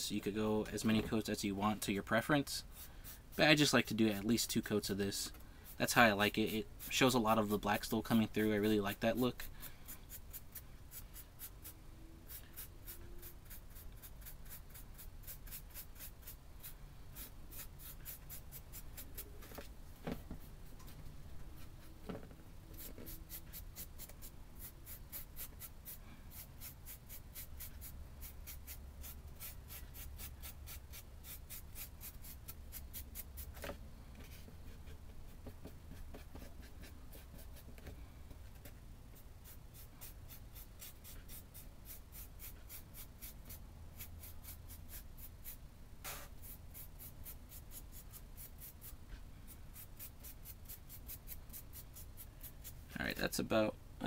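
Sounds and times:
paintbrush scrubbing on brick: 10.1 - 19.5, 22.7 - 33.5, 39.2 - 49.0, 49.7 - 52.8.

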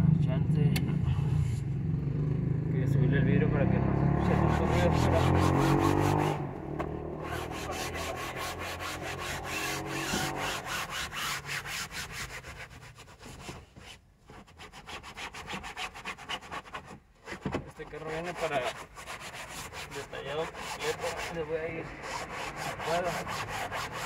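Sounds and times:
cloth scrubbing fabric: 17.8 - 24.0.

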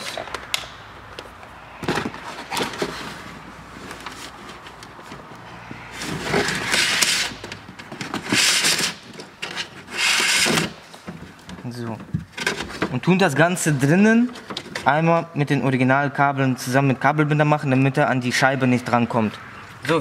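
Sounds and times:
cables scraping against metal door: 5.5 - 11.1.

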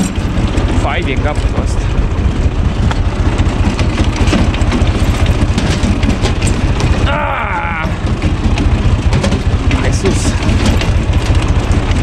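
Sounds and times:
tractor diesel engine running: 0.0 - 12.0
wood splitting cracks: 2.9 - 12.0.

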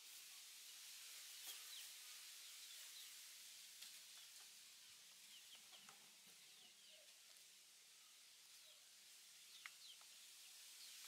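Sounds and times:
soft steady hiss: 0.0 - 11.0
chicks peeping: 9.4 - 10.2.

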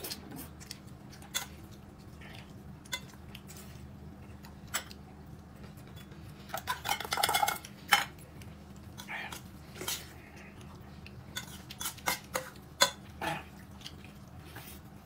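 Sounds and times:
utensils clinking and scraping dish: 5.9 - 8.2, 11.3 - 13.1.

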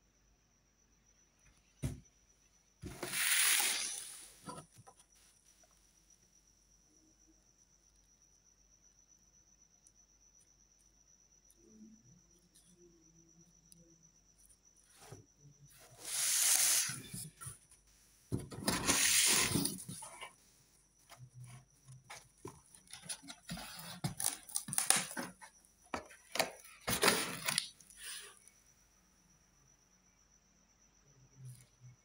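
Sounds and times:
cardboard flaps scraping and rustling: 18.4 - 20.3.

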